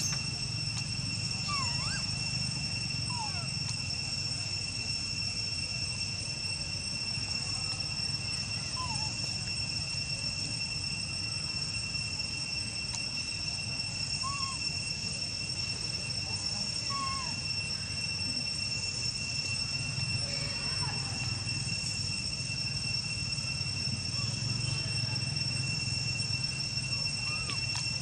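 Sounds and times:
faint chirping calls: 0.0s - 4.2s, 8.4s - 9.6s, 13.2s - 21.7s, 26.0s - 28.0s
insects droning: 0.0s - 28.0s.

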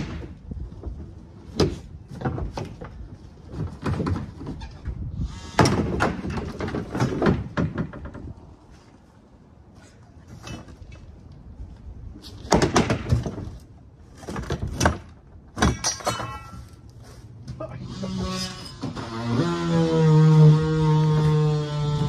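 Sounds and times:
plastic panels clattering and creaking: 0.0s - 8.6s, 12.2s - 16.8s.

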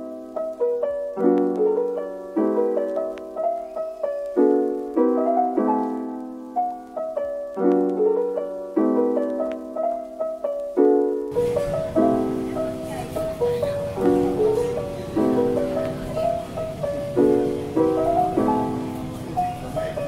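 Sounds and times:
soft piano chords and melody: 0.0s - 20.0s.

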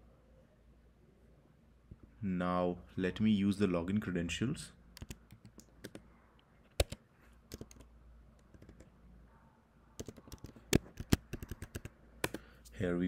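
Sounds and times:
computer keyboard typing: 5.0s - 6.1s, 6.8s - 8.9s, 10.0s - 12.6s.

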